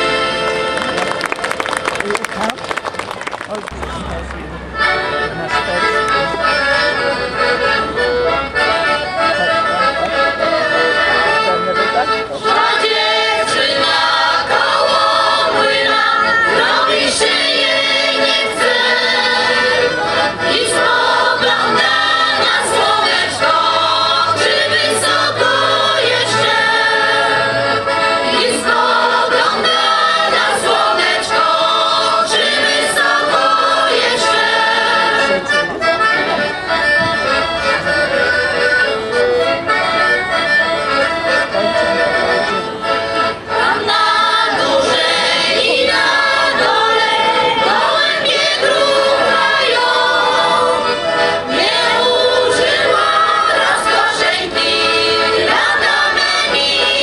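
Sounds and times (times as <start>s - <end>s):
piano accordion: 0.0s - 2.6s, 3.8s - 57.0s
choir singing folk song: 10.1s - 35.6s, 41.7s - 57.0s.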